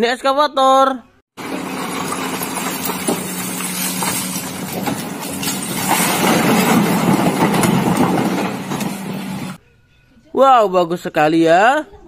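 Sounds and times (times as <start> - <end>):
diesel engine humming: 1.4 - 9.6
rush of falling rock: 1.4 - 9.6
rock knocking and clattering: 1.6 - 9.6.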